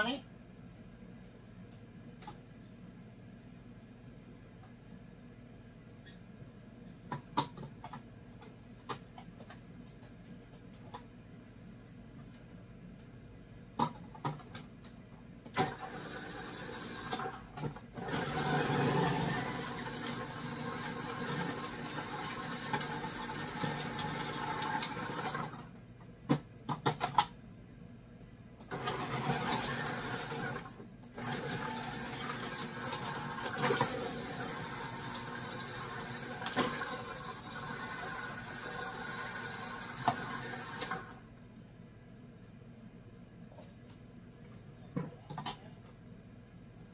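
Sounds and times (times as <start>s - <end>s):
food processor motor running: 15.6s - 17.4s, 18.0s - 25.6s, 28.7s - 41.1s.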